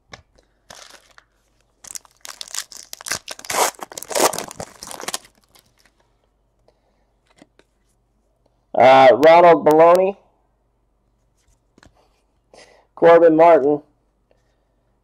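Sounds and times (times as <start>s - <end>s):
wrapper tearing and crinkling: 0.7s - 5.9s.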